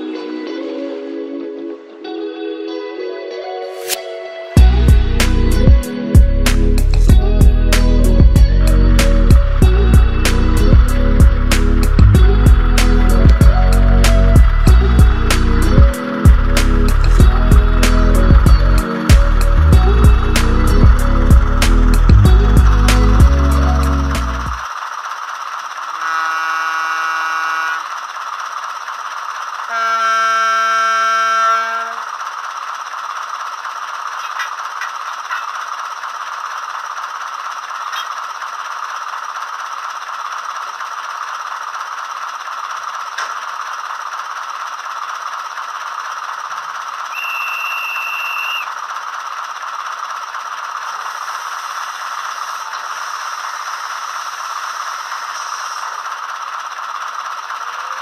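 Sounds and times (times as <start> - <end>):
diesel engine idling: 4.6 - 26.0, 26.9 - 58.0
locomotive horn blasts: 26.0 - 27.9, 29.7 - 32.1, 47.1 - 48.6
short high whistle: 47.1 - 48.7.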